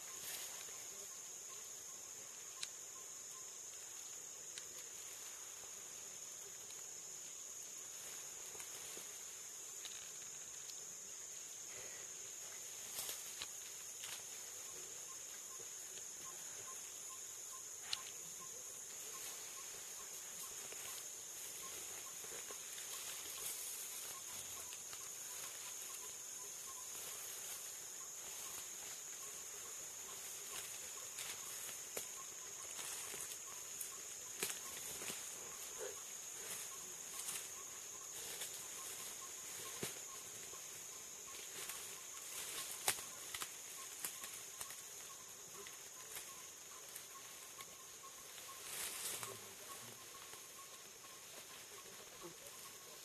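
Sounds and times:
leaves rustling and snapping: 9.8 - 10.8, 12.9 - 14.3, 30.5 - 35.3, 41.3 - 44.9.

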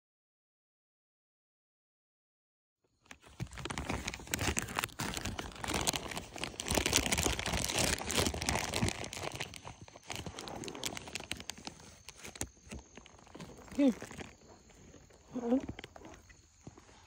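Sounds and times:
plastic snack bag crinkling: 3.0 - 15.1.

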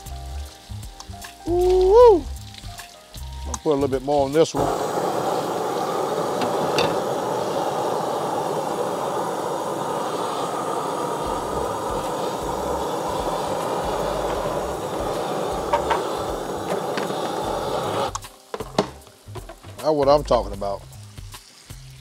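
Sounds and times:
steak searing crackles: 0.0 - 22.0
torch flame roaring: 4.4 - 18.3.

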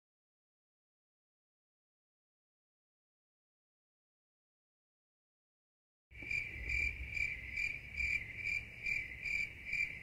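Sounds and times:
cricket chirping: 6.2 - 10.0.

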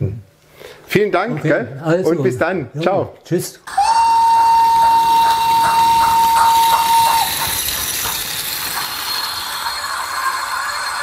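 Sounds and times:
steam whistle: 3.7 - 11.0
running hiss: 4.4 - 11.0
steam locomotive chuffing: 5.0 - 11.0.

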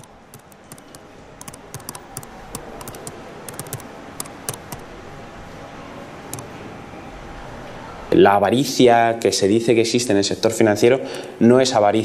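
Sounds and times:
laptop keyboard typing: 0.0 - 4.9, 6.3 - 6.5
steady background noise: 0.0 - 12.0.

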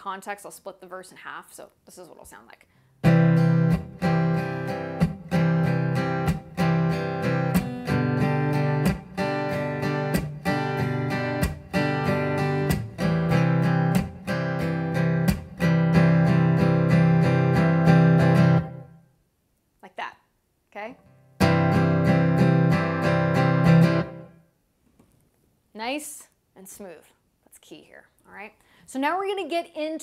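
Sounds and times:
acoustic guitar strumming: 3.0 - 19.0, 21.4 - 24.4.

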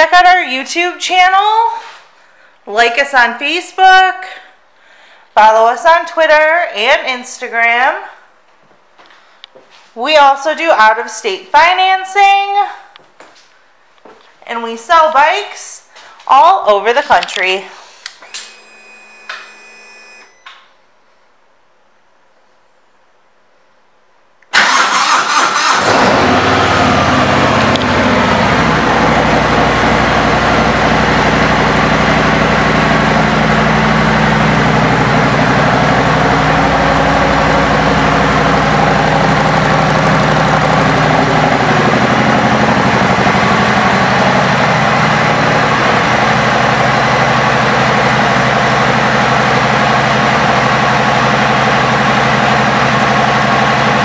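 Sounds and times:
motorcycle engine starting and idling: 24.5 - 54.0.

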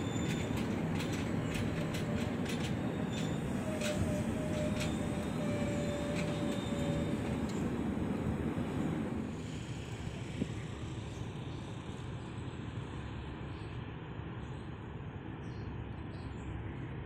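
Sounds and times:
wheels clicking over rail joints: 0.0 - 8.4
train coaches rumbling past: 0.0 - 15.3.

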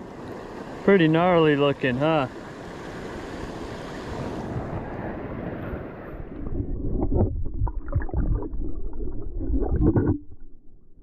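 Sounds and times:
underwater gurgles and knocks: 6.2 - 11.0.

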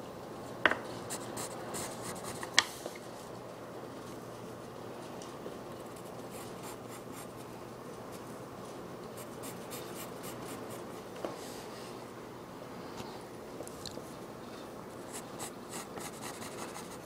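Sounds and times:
pencil scratching on paper: 15.1 - 17.0.

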